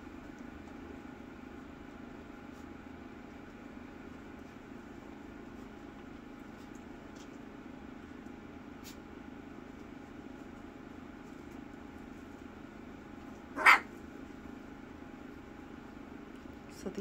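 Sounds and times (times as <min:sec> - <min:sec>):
low background hum: 0:00.0 - 0:17.0
puppy barking: 0:13.5 - 0:13.9.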